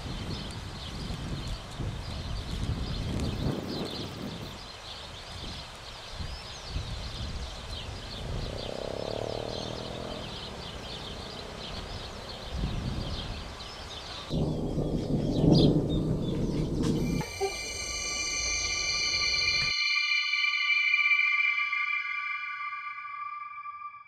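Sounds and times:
small birds chirping: 0.0 - 19.7
loud low sound: 14.3 - 24.0.

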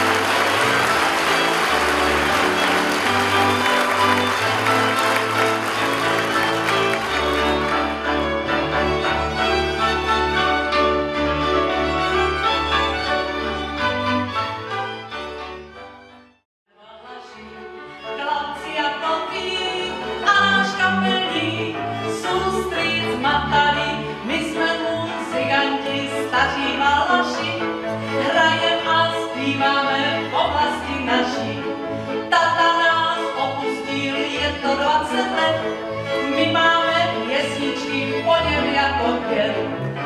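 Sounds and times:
cimbalom band with fiddles: 0.0 - 16.3, 17.4 - 40.0
woman singing: 16.7 - 31.7, 32.3 - 39.7.

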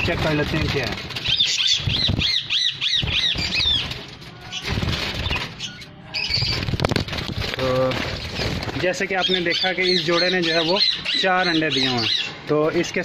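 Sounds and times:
rustling and handling noise: 0.0 - 2.4, 3.0 - 9.9
budgerigars chirping: 0.2 - 6.8, 8.1 - 12.5.

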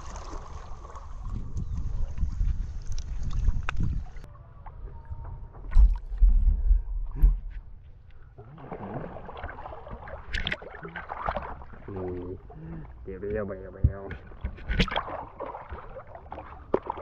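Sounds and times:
water sloshing and lapping: 0.0 - 17.0
low bumps: 1.0 - 8.2.

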